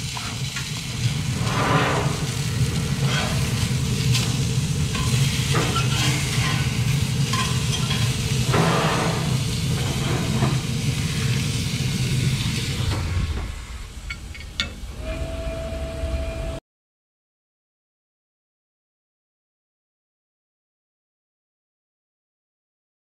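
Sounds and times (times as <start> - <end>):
steak sizzling in a skillet: 0.0 - 12.8
metal tongs clinking on pan: 4.9 - 8.3
low hum: 6.5 - 16.6.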